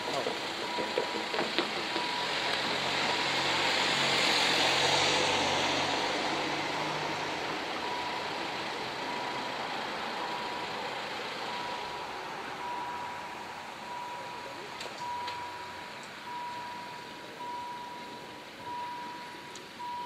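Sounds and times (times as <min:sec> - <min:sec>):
truck engine running low: 0:00.0 - 0:20.0
vehicle tyre noise passing: 0:00.0 - 0:20.0
warning bells high tone: 0:12.6 - 0:20.0.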